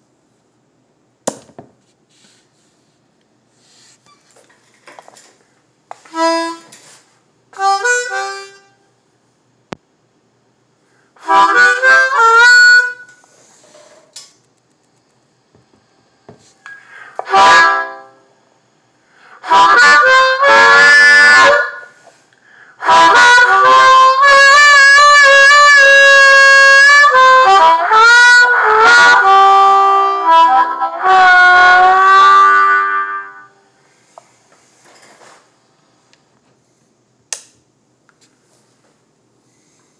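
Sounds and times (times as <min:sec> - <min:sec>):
harmonica through amplifier: 0:06.0 - 0:08.8, 0:11.0 - 0:13.8, 0:16.5 - 0:18.3, 0:19.1 - 0:34.2.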